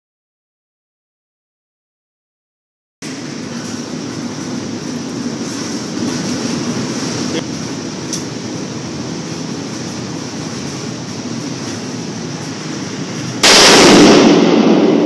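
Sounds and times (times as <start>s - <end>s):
steady background noise: 3.0s - 15.0s
loud rifle shot: 13.4s - 15.0s.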